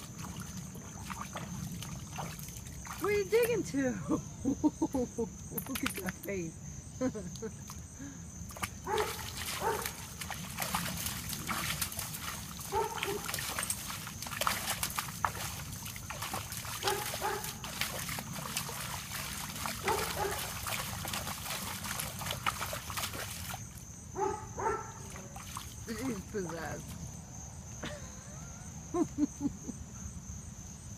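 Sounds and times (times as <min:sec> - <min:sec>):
paws splashing in mud: 0:00.0 - 0:03.2, 0:08.5 - 0:23.8, 0:24.6 - 0:27.0
dog yelping: 0:12.7 - 0:13.3, 0:16.8 - 0:17.6, 0:19.8 - 0:20.5.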